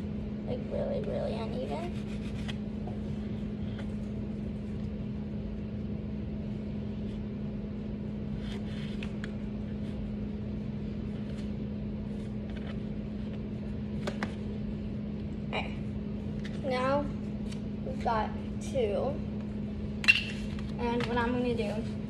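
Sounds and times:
low electrical hum: 0:00.0 - 0:22.0.

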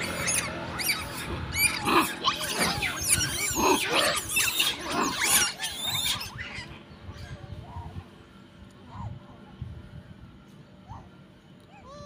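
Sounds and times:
monkeys screaming: 0:00.0 - 0:07.9.

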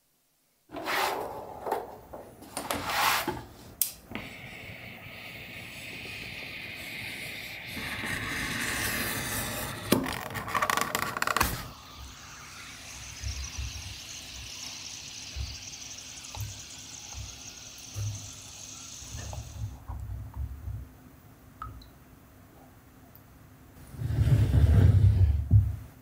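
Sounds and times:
high hiss: 0:04.0 - 0:19.9.

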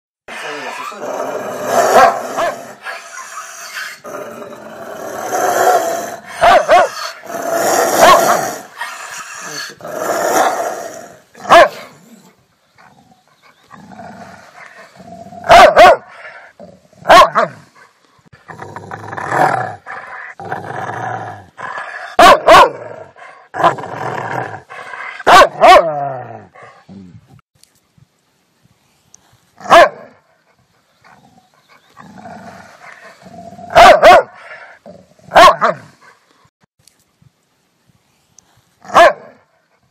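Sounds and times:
dog growling: 0:00.3 - 0:16.9, 0:31.1 - 0:35.1
dog barking: 0:01.9 - 0:02.7, 0:06.4 - 0:07.2, 0:07.8 - 0:08.6, 0:11.4 - 0:12.0, 0:15.4 - 0:16.1, 0:17.0 - 0:17.6, 0:22.2 - 0:22.8, 0:25.2 - 0:26.0, 0:29.6 - 0:30.2, 0:33.7 - 0:34.4, 0:35.3 - 0:35.9, 0:38.9 - 0:39.5.

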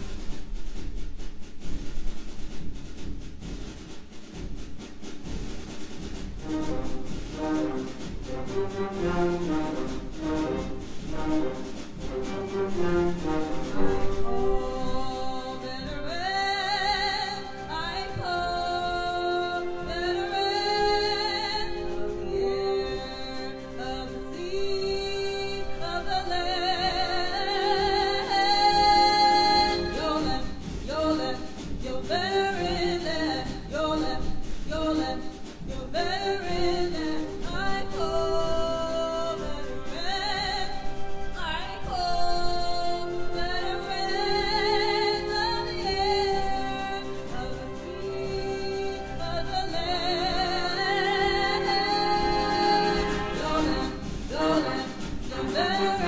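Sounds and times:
orchestra strings holding notes: 0:06.3 - 0:31.2, 0:36.2 - 0:56.0
woman singing with vibrato: 0:13.0 - 0:56.0.

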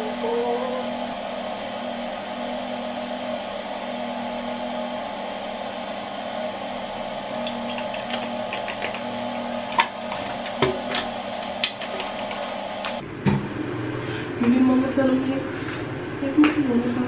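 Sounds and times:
steady mechanical hum: 0:00.0 - 0:17.0.

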